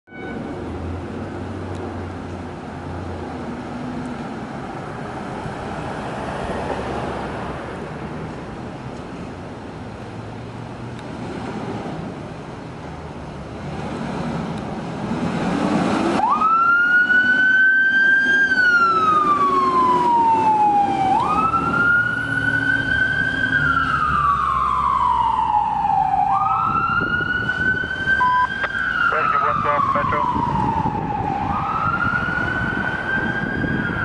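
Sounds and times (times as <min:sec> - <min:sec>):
siren wailing: 0:16.2 - 0:34.0.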